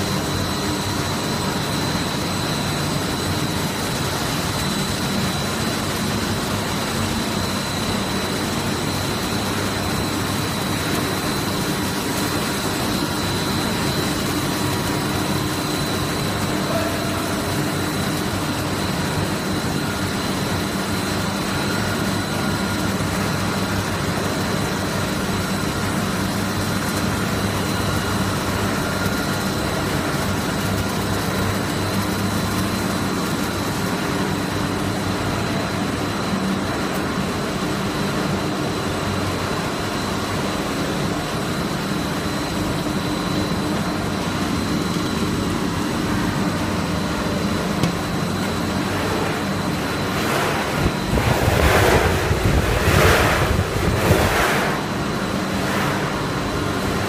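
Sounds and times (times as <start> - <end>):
high machine whine: 0.0 - 57.0
machinery drone: 6.4 - 22.8, 40.8 - 57.0.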